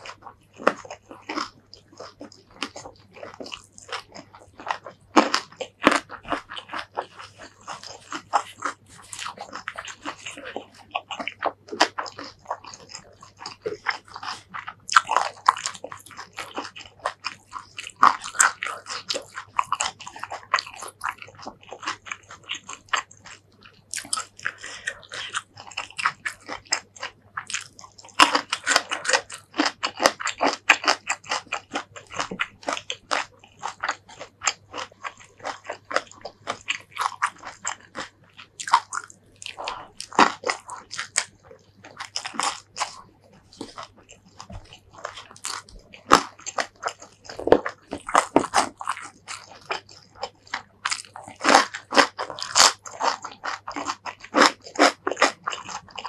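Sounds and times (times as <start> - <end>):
chewing and crunching food: 0.0 - 56.0.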